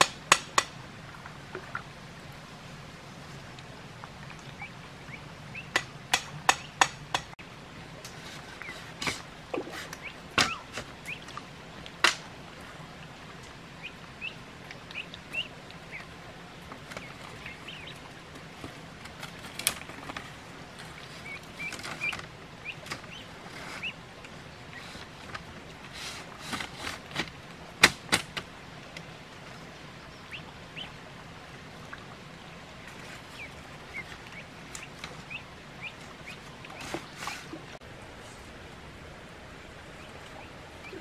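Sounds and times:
bamboo knocking: 0.0 - 0.8, 5.7 - 7.4.

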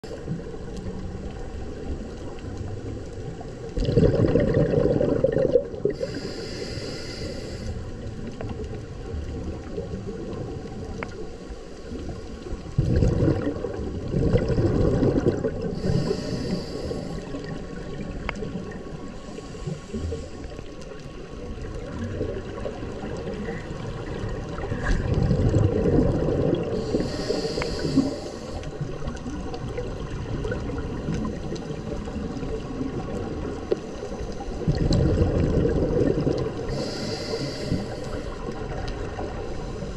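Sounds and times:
muffled underwater rush: 0.0 - 39.9
swimmer's hissing breath: 5.9 - 8.0, 15.7 - 17.6, 19.1 - 20.6, 26.7 - 28.8, 36.6 - 38.6, 39.4 - 39.9.

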